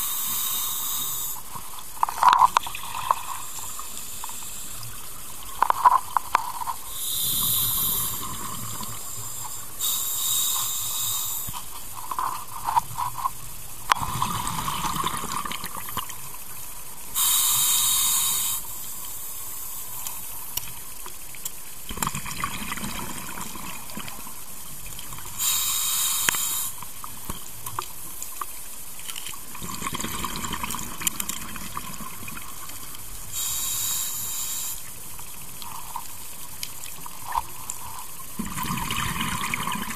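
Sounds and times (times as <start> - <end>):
regulator inhalation hiss: 0.0 - 1.8, 3.2 - 5.0, 6.8 - 11.8, 17.1 - 20.4, 25.3 - 27.0, 33.2 - 36.0
rumbling exhaled bubbles: 7.9 - 9.0, 14.0 - 16.2, 21.9 - 24.2, 29.6 - 32.6, 38.3 - 39.9.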